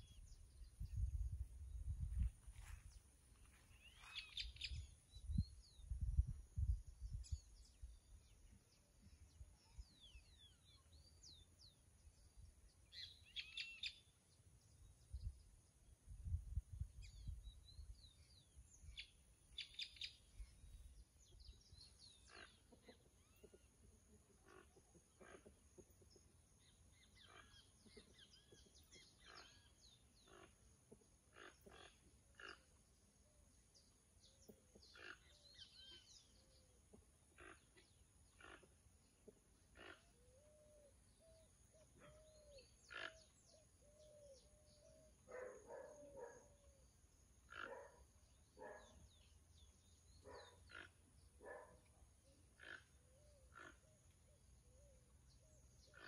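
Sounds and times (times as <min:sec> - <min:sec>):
wind on microphone: 0:00.0 - 0:02.6, 0:04.7 - 0:07.6, 0:16.1 - 0:17.6
low repeated bird calls: 0:03.7 - 0:08.4, 0:16.2 - 0:56.0.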